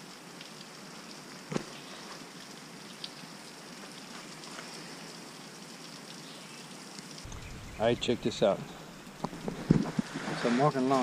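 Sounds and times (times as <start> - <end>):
creek water running: 0.0 - 11.0.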